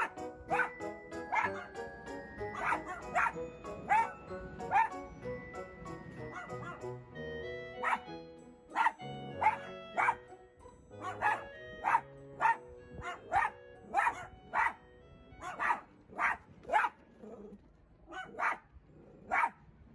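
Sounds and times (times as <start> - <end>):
soft background music: 0.0 - 17.4
dog barking sharply: 8.8 - 10.2, 11.0 - 14.8.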